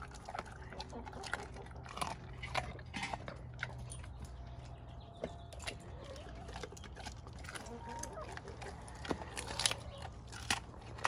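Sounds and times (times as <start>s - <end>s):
dog chewing from a metal bowl: 0.0s - 11.0s.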